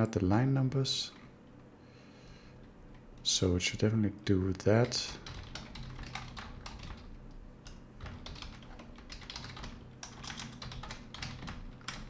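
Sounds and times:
keyboard keys clicking: 4.8 - 12.0.

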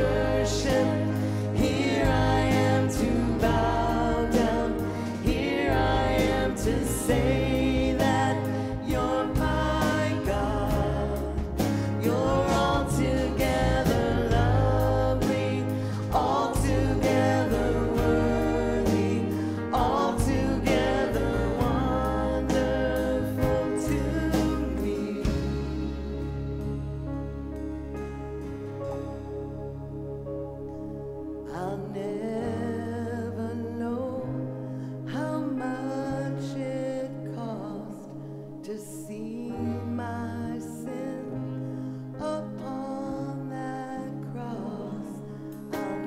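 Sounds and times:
sustained bass notes: 0.0 - 34.6
worship song singing: 0.0 - 46.0.

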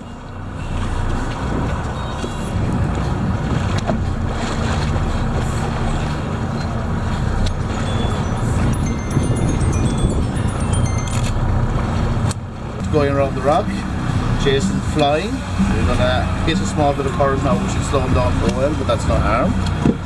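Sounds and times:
boat engine droning: 0.0 - 20.0
wind: 0.0 - 20.0.

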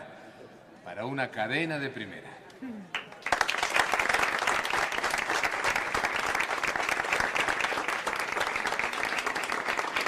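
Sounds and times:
people clapping: 2.9 - 10.0.

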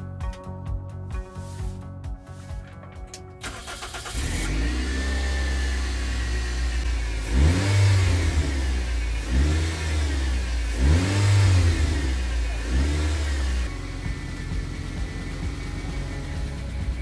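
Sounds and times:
atv engine idling and revving: 4.1 - 17.0.

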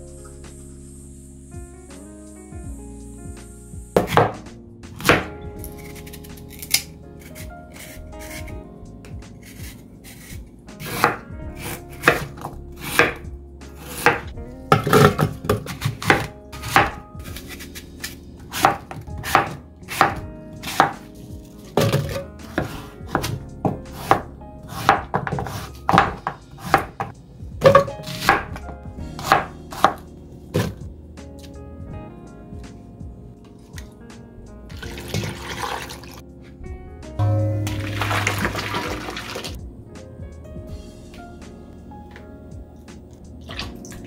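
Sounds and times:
knife chopping on cutting board: 4.0 - 4.4, 5.0 - 8.5, 9.4 - 13.2, 13.8 - 21.0, 21.7 - 30.0, 30.6 - 30.8.

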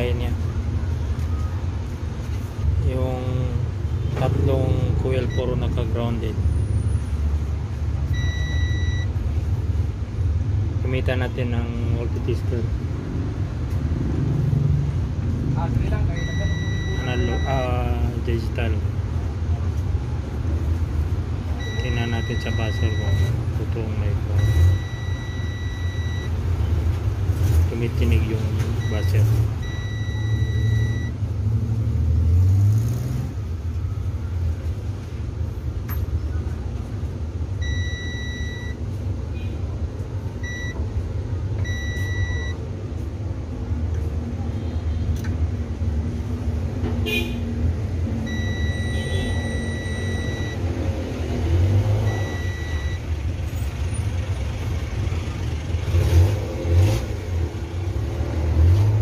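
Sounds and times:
multimeter buzzer beeping: 48.3 - 50.6.

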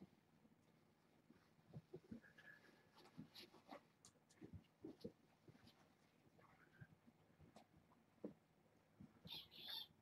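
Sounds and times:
person moving about: 1.1 - 9.2
kittens scuffling on a rug: 1.2 - 8.4.

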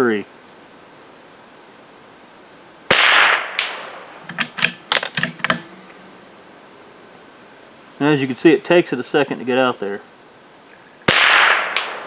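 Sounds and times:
insects buzzing: 0.0 - 12.0
rifle shot: 2.9 - 5.6, 11.1 - 12.0.

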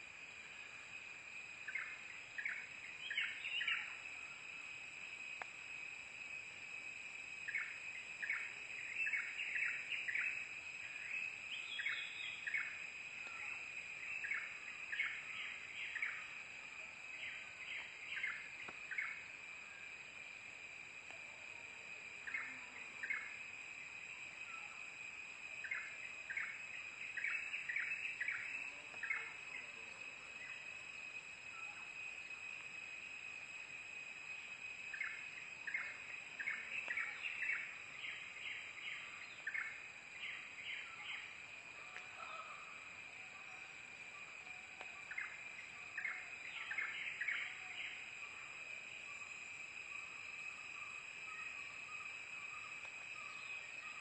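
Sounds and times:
high-pitched insect trill: 0.0 - 54.0.

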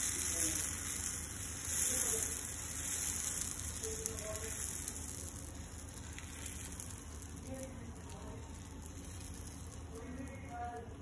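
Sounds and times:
batter sizzling on a hot pan: 0.0 - 11.0.

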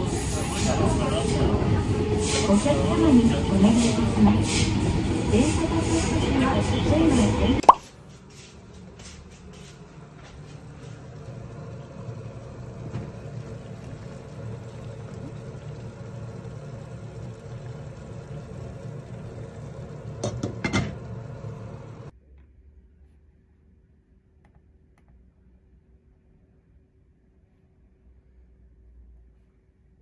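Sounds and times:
pot boiling: 2.2 - 22.1.

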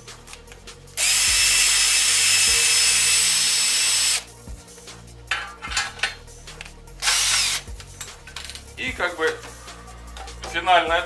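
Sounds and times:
cordless drill whining: 1.0 - 4.3, 7.0 - 7.6.

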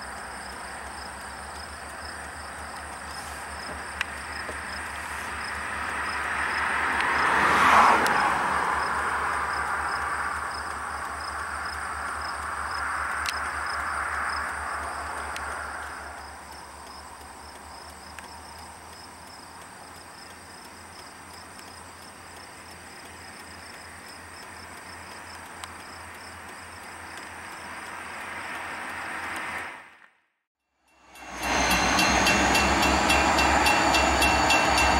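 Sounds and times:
low train rumble: 0.0 - 29.9, 30.9 - 34.9
train wheels grinding on rails: 30.9 - 34.9.

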